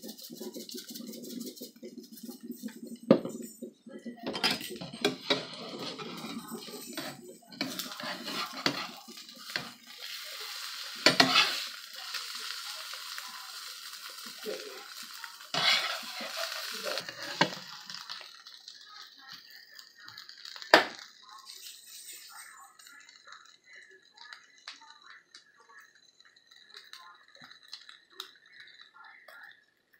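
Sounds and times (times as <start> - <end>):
spatula scraping frying pan: 0.0 - 3.4, 4.4 - 17.7
omelette crackling in frying pan: 4.8 - 29.9.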